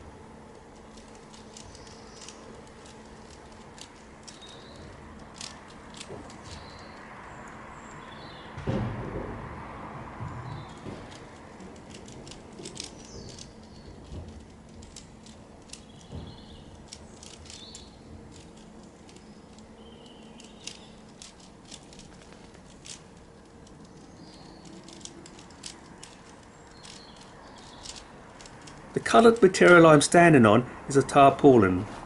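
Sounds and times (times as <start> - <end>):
birds chirping: 0.9 - 8.6, 10.2 - 31.8
plastic puzzle cube clicking: 5.2 - 6.4, 11.8 - 13.5, 16.9 - 23.1, 23.8 - 28.8.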